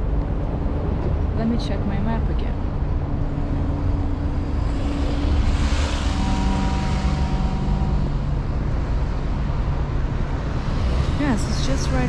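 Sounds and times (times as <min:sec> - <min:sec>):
engine-like tones: 0:00.0 - 0:12.0
traffic rumbling past: 0:00.0 - 0:12.0
wind on microphone: 0:02.6 - 0:12.0.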